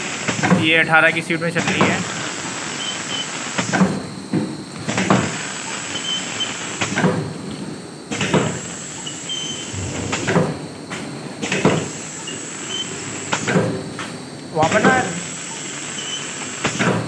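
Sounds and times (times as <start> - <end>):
high machine squeak: 8.9 - 10.7, 12.1 - 13.1, 14.6 - 16.5.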